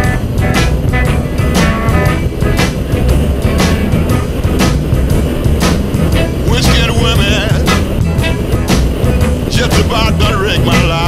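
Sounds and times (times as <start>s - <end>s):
music with drum beat and heavy bass: 0.0s - 11.0s.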